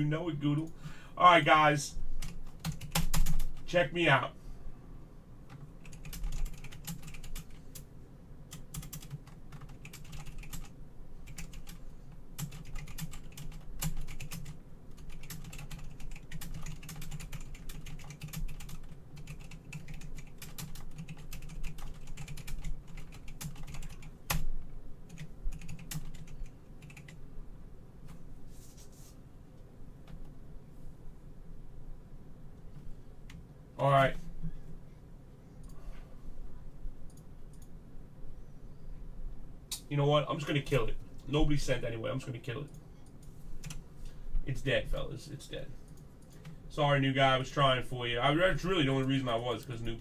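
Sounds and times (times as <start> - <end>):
keyboard typing clicks: 37.1 - 37.7.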